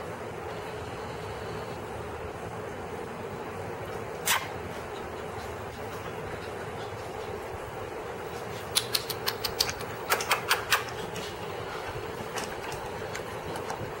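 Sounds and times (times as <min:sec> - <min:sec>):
steady low hum: 0:00.0 - 0:14.0
puppy claws clicking on tile: 0:08.6 - 0:11.4.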